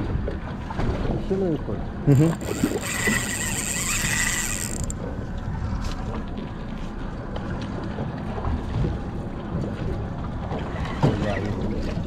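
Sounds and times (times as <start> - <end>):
low rumble of boat and water: 0.0 - 12.0
fishing reel drag whining: 2.1 - 5.0.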